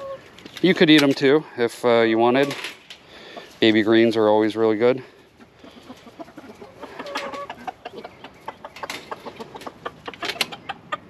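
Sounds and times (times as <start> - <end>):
chickens clucking softly: 0.0 - 1.2, 3.2 - 11.0
pecking and scratching in straw: 5.6 - 10.2.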